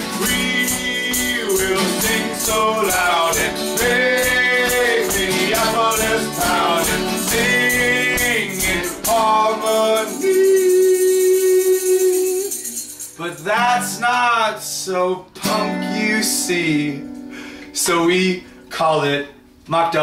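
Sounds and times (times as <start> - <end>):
men singing wordless chorus: 0.0 - 12.5
shaken tambourine: 0.0 - 14.0
strummed acoustic guitars: 0.0 - 20.0
stomping feet: 0.2 - 9.2.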